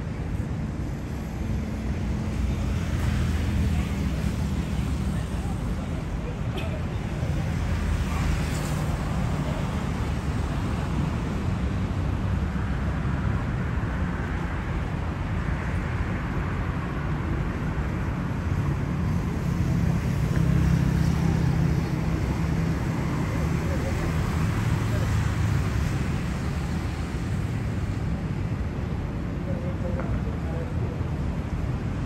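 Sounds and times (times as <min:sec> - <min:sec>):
road traffic rumble: 0:00.0 - 0:32.0.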